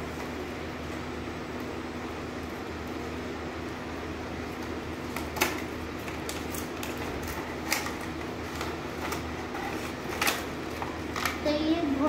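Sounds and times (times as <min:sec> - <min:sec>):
steady low hum: 0:00.0 - 0:12.0
packaging clicks and crinkles: 0:04.6 - 0:11.5.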